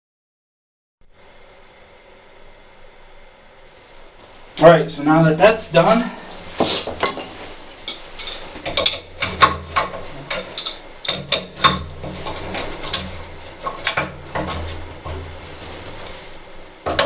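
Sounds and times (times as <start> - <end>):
wrench clinking on metal fittings: 7.9 - 13.1.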